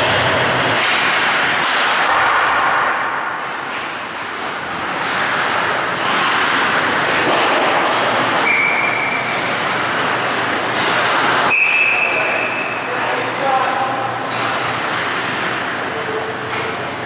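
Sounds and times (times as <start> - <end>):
skates on ice: 0.0 - 17.0
referee's whistle blasts: 8.4 - 9.2, 11.5 - 12.7.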